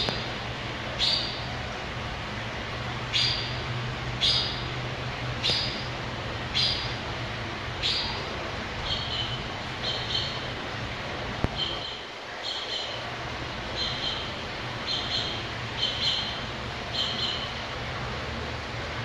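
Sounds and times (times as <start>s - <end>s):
low steady hum: 0.0s - 19.0s.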